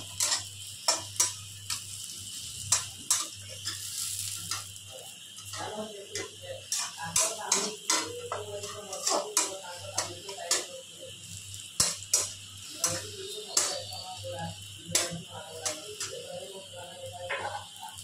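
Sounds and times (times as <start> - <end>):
metal spatula scraping a pan: 0.0 - 4.7, 5.4 - 10.7, 11.8 - 14.3.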